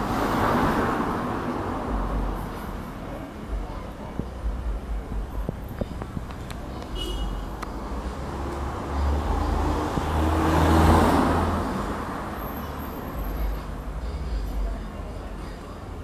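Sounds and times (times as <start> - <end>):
vehicle passing by: 0.0 - 2.5, 7.8 - 13.8.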